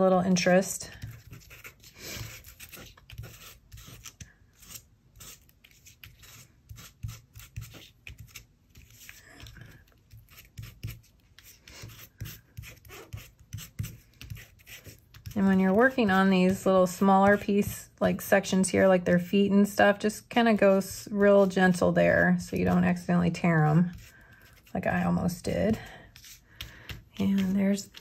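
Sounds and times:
sanding tool scratching paper: 0:10.3 - 0:16.0.

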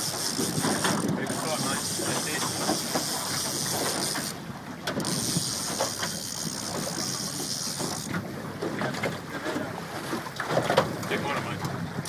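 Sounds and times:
wind buffeting microphone: 0:00.0 - 0:09.0
water washing around boat: 0:00.0 - 0:12.0.

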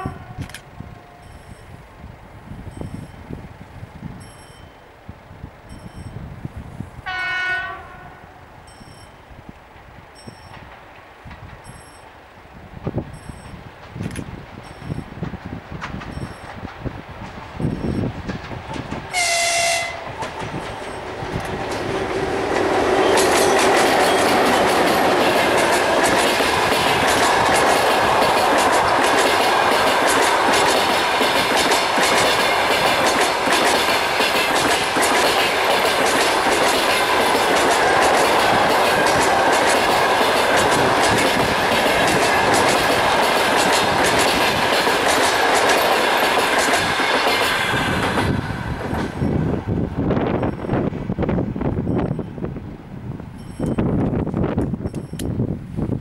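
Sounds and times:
train passing with rumble: 0:00.0 - 0:56.0
brief tone: 0:00.4 - 0:01.8, 0:02.7 - 0:03.2, 0:04.2 - 0:04.9, 0:05.7 - 0:06.2, 0:08.6 - 0:09.2, 0:10.2 - 0:10.6, 0:11.7 - 0:12.1, 0:13.1 - 0:13.6, 0:14.6 - 0:15.1, 0:16.1 - 0:16.5, 0:53.4 - 0:53.8
wheels clickety-clack on rail joints: 0:08.7 - 0:12.2, 0:12.8 - 0:52.4.

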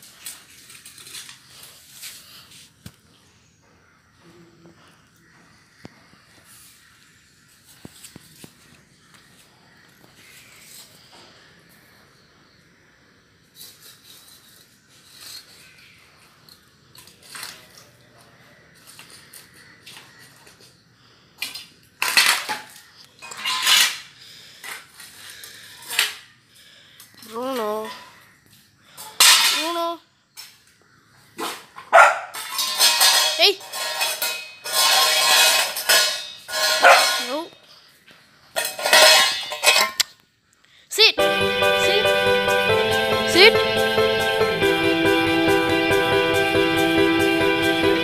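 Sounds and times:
metal dog bowl scraping on tiles: 0:13.6 - 0:15.9, 0:23.2 - 0:24.0, 0:32.3 - 0:37.4, 0:38.6 - 0:40.0.

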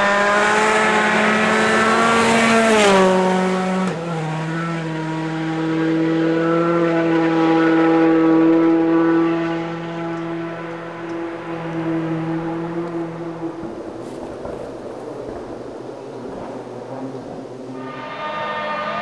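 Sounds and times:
rally car engine at high revs: 0:00.0 - 0:19.0
tyres hissing on gravel: 0:14.0 - 0:15.3.

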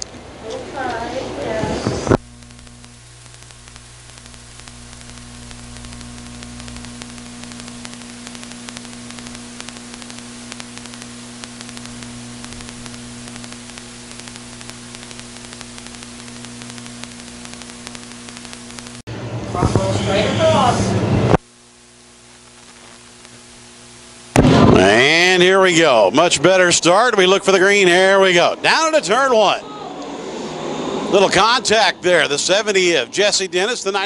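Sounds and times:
low mains hum: 0:00.0 - 0:34.0
electrical hiss: 0:00.9 - 0:27.0.

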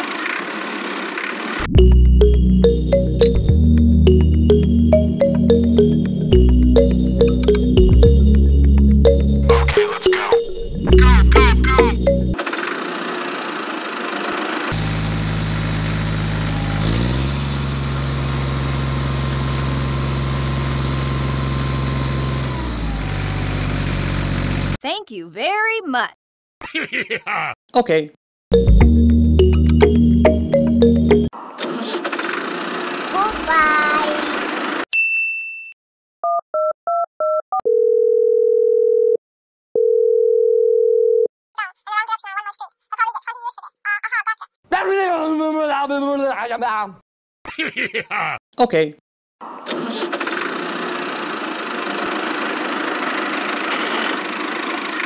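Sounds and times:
tractor engine revving: 0:10.9 - 0:24.8, 0:49.4 - 0:55.0.

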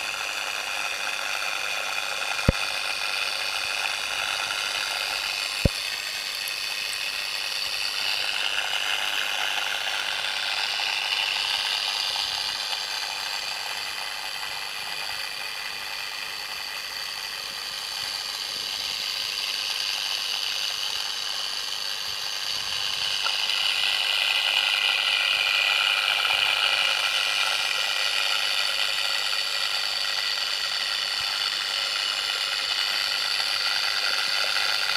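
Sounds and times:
mechanical whirring underwater: 0:00.0 - 0:34.9
sharp click: 0:02.4 - 0:02.7.

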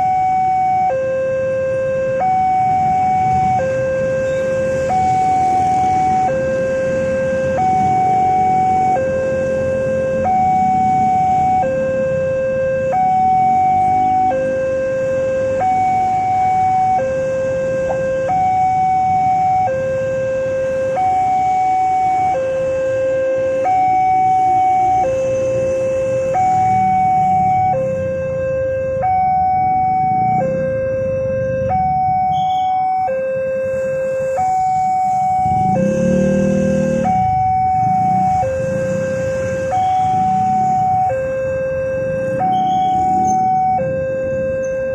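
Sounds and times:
two-tone crossing alarm: 0:00.0 - 0:44.9
vehicle engines running low: 0:24.1 - 0:44.9.

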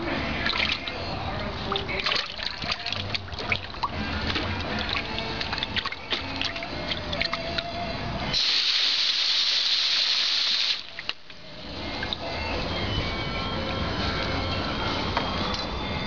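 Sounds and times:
hose nozzle spraying water: 0:08.3 - 0:11.2.

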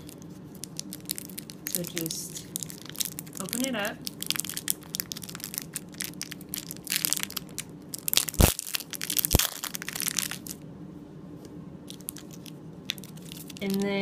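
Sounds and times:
plastic wrapper crackling: 0:00.0 - 0:10.6, 0:11.9 - 0:14.0.

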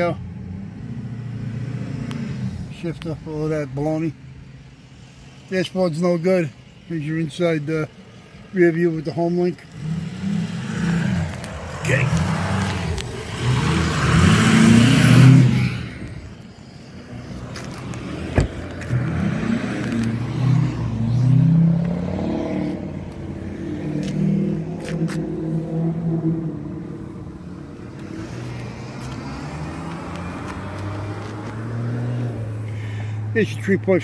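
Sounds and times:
vehicles driving by: 0:00.0 - 0:34.0.

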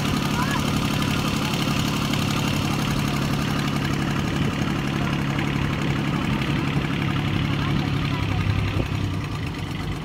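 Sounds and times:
boat engine idling: 0:00.0 - 0:10.0.

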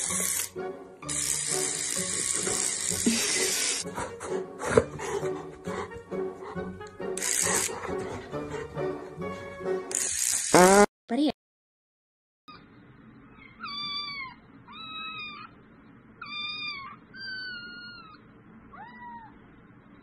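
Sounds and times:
faint room hum: 0:12.5 - 0:20.0
kittens meowing: 0:13.3 - 0:15.6, 0:16.2 - 0:19.4.

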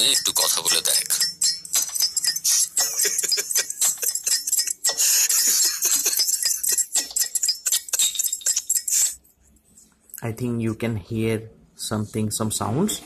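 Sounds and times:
trailer soundtrack through tiny speaker: 0:00.0 - 0:09.6.

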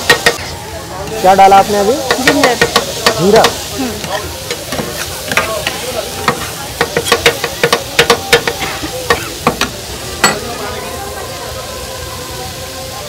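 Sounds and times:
metal spatula clanking on pan: 0:00.0 - 0:00.5, 0:02.0 - 0:10.5
frying sizzle: 0:00.0 - 0:13.0.

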